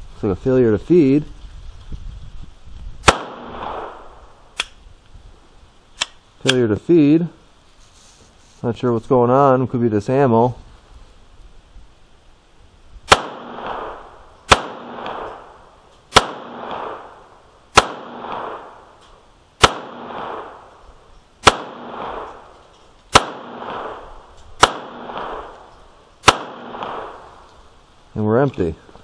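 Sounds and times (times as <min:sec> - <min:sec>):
pistol shots with echo: 0:03.0 - 0:04.2, 0:13.1 - 0:19.0, 0:19.6 - 0:20.8, 0:21.4 - 0:22.5, 0:23.1 - 0:27.3.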